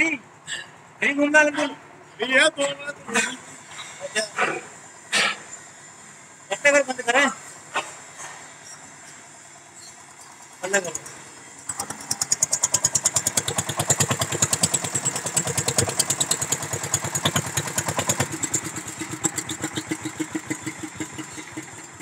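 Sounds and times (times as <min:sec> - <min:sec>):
diesel engine knocking: 0:09.2 - 0:22.0.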